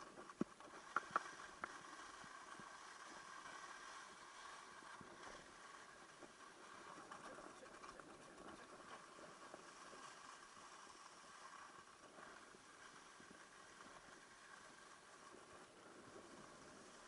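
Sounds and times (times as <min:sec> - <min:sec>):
skis sliding over snow: 0:00.0 - 0:17.0
sharp clicks: 0:00.8 - 0:01.8.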